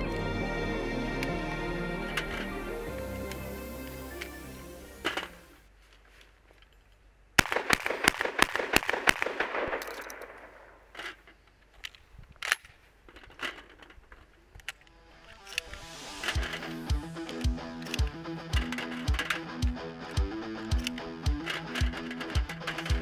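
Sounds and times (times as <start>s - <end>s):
shotgun firing rapidly: 7.4s - 9.8s
shells clicking into magazine: 8.7s - 23.0s.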